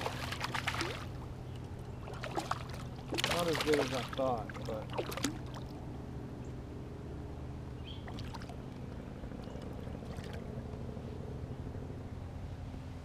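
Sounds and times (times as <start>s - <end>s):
water lapping around kayak: 0.0s - 6.0s, 7.8s - 11.0s
steady low hum: 0.0s - 13.0s.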